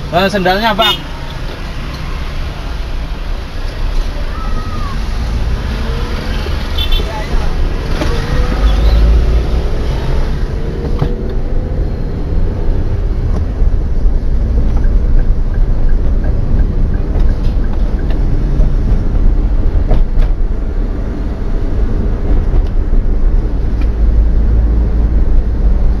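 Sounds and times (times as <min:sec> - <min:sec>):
car engine rumble: 0:00.0 - 0:26.0
road noise: 0:00.0 - 0:26.0.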